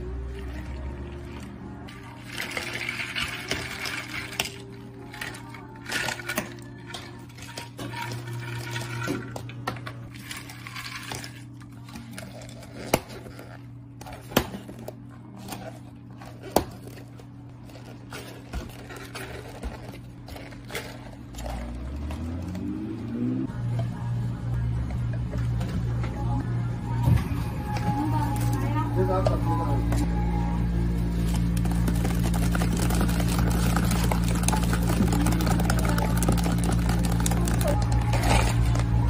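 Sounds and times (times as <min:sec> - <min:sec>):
music: 0:00.0 - 0:10.1, 0:23.3 - 0:39.0
steady low hum: 0:00.0 - 0:39.0
ice cubes clattering into cups: 0:01.2 - 0:09.5, 0:10.1 - 0:13.3, 0:31.3 - 0:39.0.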